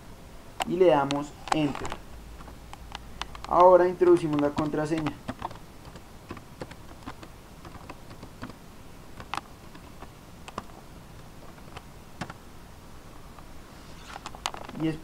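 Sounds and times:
computer keyboard keystrokes: 1.0s - 8.6s, 9.2s - 10.8s, 11.5s - 12.4s.

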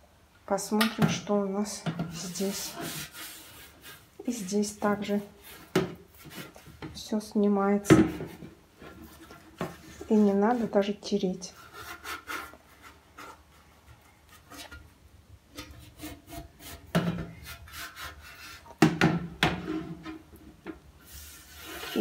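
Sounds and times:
fingers scraping metal tray: 21.2s - 22.0s.

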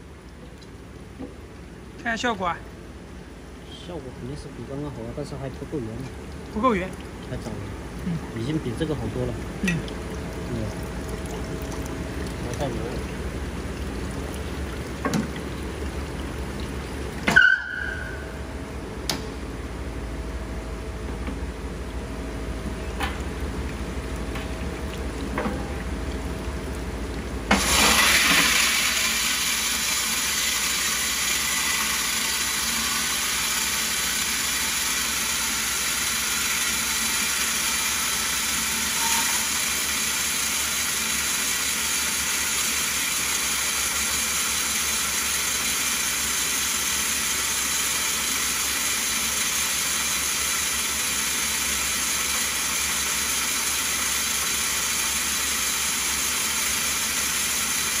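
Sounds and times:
running water: 0.0s - 18.4s, 21.1s - 58.0s
stone milling machine grinding: 27.6s - 39.8s.

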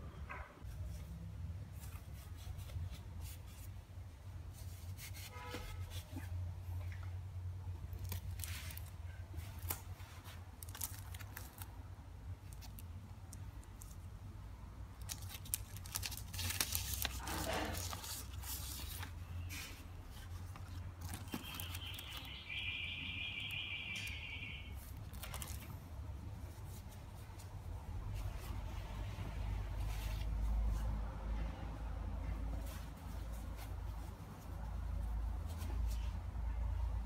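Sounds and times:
paper rustling: 7.9s - 11.7s, 15.0s - 22.4s, 24.8s - 28.7s.

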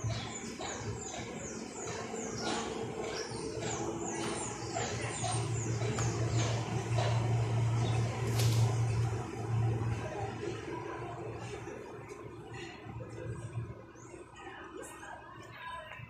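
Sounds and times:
bird chirping: 0.0s - 7.2s
low steady hum: 0.0s - 16.0s.

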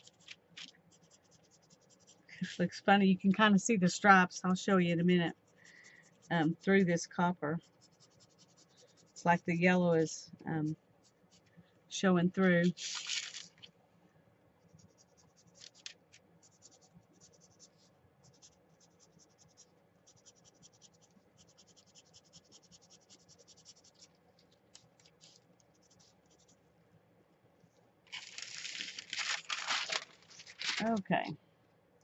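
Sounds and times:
marker scratching on paper: 0.0s - 0.3s, 0.9s - 2.8s, 4.9s - 9.7s, 14.7s - 24.2s, 24.8s - 26.6s
paper rustling scrape: 12.7s - 13.7s, 28.1s - 31.1s.

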